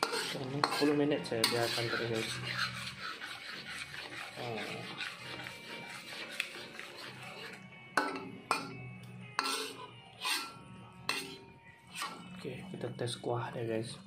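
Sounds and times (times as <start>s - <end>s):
spatula clanking against wok: 0.0s - 2.7s, 8.0s - 8.8s, 9.4s - 12.2s
metal spatula scraping wok: 0.0s - 12.4s.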